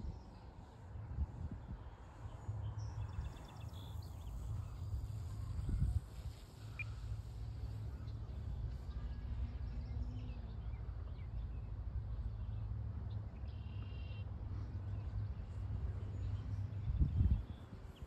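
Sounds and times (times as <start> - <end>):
wind buffeting microphone: 0.9 - 9.8, 16.5 - 18.0.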